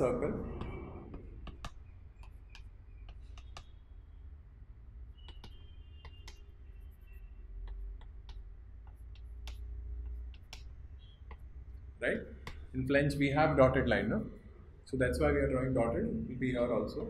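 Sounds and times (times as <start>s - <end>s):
low steady hum: 0.0s - 17.0s
chalk tapping on chalkboard: 0.5s - 3.9s, 5.2s - 12.7s.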